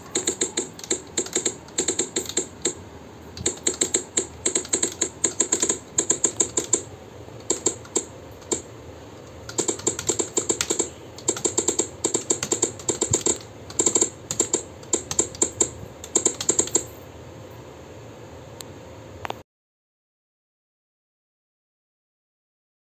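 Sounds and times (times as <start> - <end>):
keyboard key clicks: 0.0 - 2.8, 3.4 - 8.6, 9.2 - 16.9.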